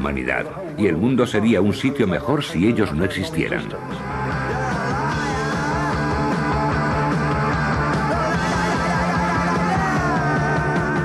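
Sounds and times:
punk rock band playing: 3.8 - 11.0.

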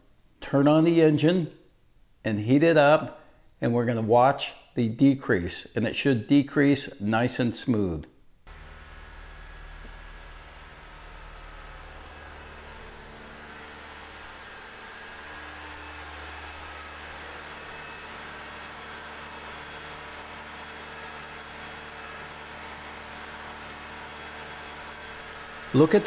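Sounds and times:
car engine idling: 8.5 - 26.0.

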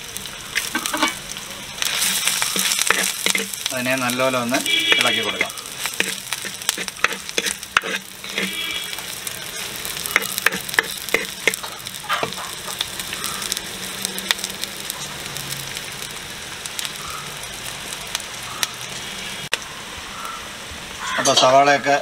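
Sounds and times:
onions sizzling in oil: 0.0 - 22.0
spoon scraping clay pot: 2.0 - 3.6, 4.6 - 8.8, 10.2 - 12.6.

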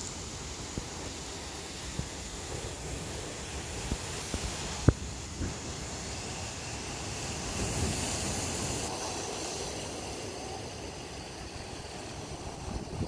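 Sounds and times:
ocean surf breaking on rocks: 0.0 - 13.0.

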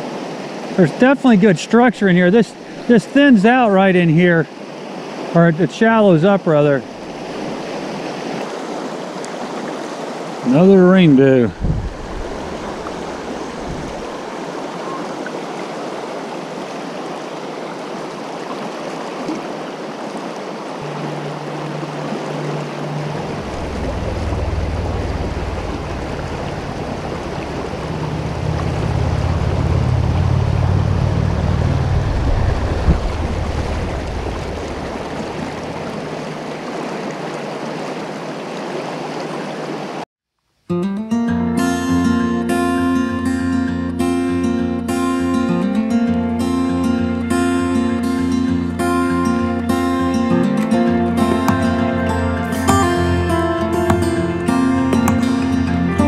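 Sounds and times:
river rushing over rapids: 0.0 - 40.0
low rumble: 20.8 - 36.3.

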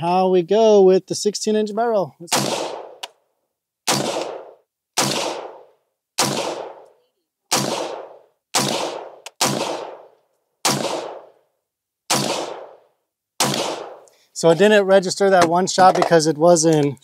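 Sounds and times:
rifle shots: 2.3 - 3.1, 3.9 - 11.4, 12.1 - 14.1.

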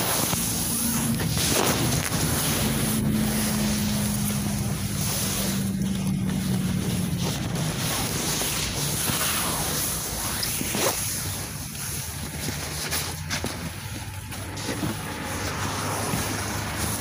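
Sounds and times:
engine and road rumble: 0.0 - 17.0
phone rubbing against coats: 0.0 - 17.0.

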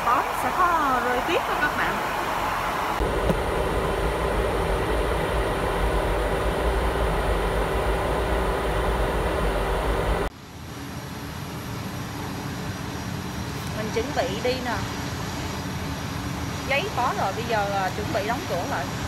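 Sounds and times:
airliner cabin rumble: 0.0 - 10.3
cabin hum: 0.0 - 10.3.

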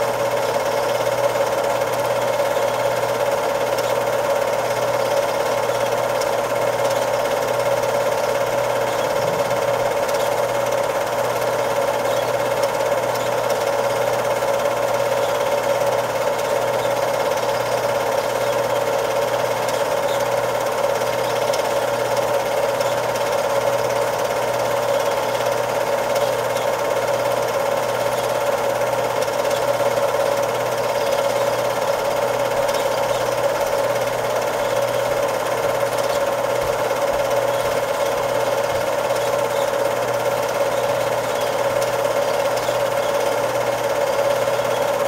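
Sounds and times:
film projector clattering: 0.0 - 45.0.

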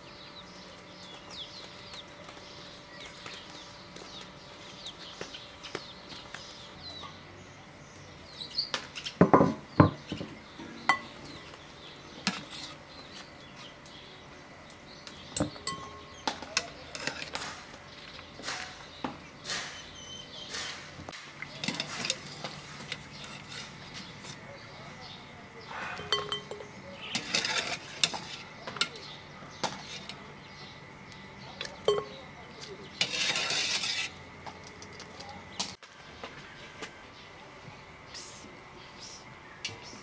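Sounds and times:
cooking pots clanking: 9.2 - 11.2, 15.3 - 17.8, 21.4 - 24.4, 25.9 - 30.6, 31.5 - 35.8
ladle scraping against pot: 16.6 - 17.6, 21.5 - 24.4, 25.9 - 29.0, 32.9 - 34.2.

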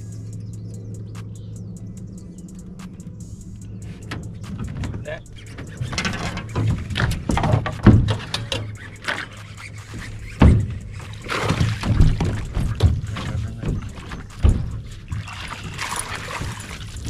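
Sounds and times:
feet thumping on boat deck: 4.0 - 8.5, 9.1 - 17.0
landing net splashing water: 4.4 - 17.0.

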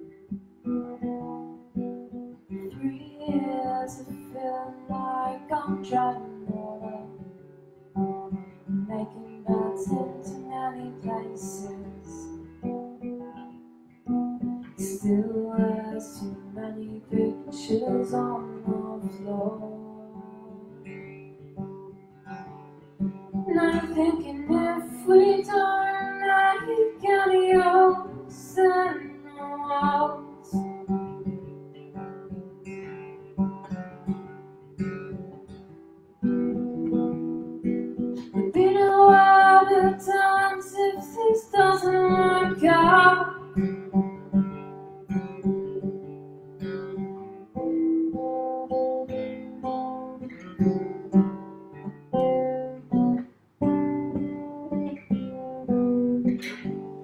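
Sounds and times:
woman singing: 0.8 - 1.6, 2.5 - 7.3, 8.7 - 12.4, 14.7 - 20.9, 23.4 - 30.8, 38.2 - 43.8
acoustic guitar strummed: 9.5 - 57.0.

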